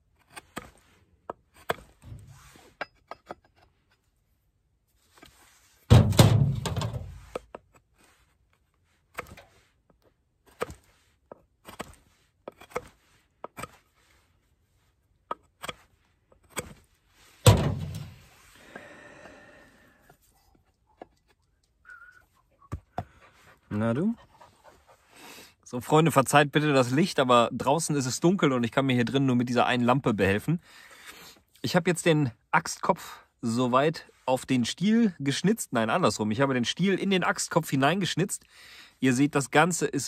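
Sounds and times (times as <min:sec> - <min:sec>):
heavy thunks: 0:05.9 - 0:07.2, 0:17.4 - 0:18.2
knife whittling wood: 0:09.1 - 0:09.6, 0:10.4 - 0:14.3.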